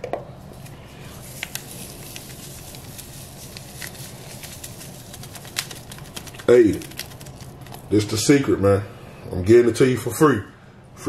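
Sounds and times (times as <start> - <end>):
packet crinkling: 0.5 - 8.0
powder crackling on peanuts: 0.5 - 8.0.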